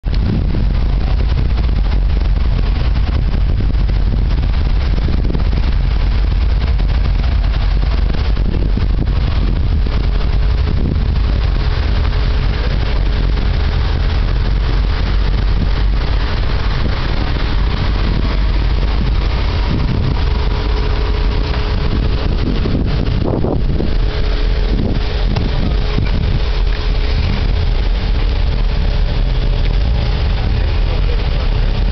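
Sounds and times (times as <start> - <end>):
car engines rumbling past: 0.0 - 31.9.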